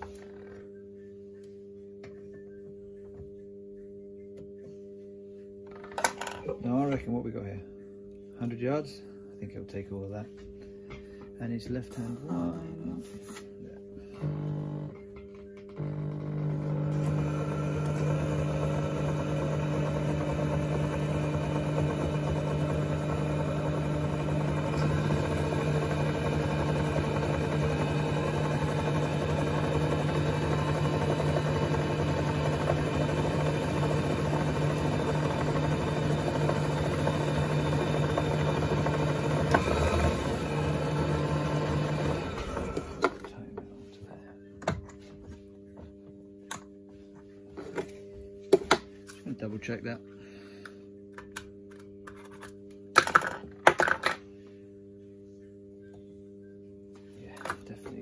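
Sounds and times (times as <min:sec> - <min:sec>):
electric motor humming: 0:14.1 - 0:43.3.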